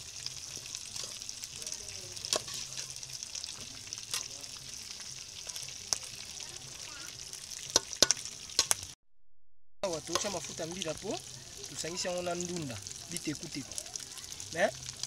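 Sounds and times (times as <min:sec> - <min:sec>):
greens sizzling in a pot: 0:00.0 - 0:09.0, 0:09.8 - 0:15.0
metal spoon knocking on pot: 0:07.7 - 0:08.7.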